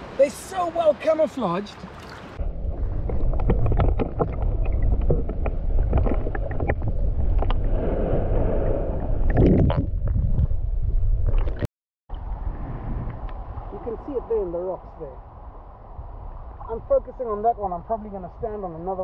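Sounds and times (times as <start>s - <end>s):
underwater surf rumble: 2.3s - 17.4s
underwater clicks and crackles: 3.0s - 7.7s, 11.2s - 11.7s.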